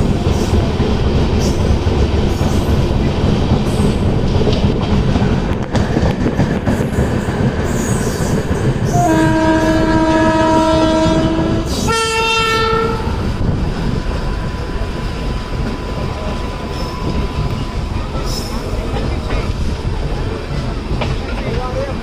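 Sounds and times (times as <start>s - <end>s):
train rumbling on rails: 0.0s - 22.0s
locomotive horn: 8.9s - 13.2s.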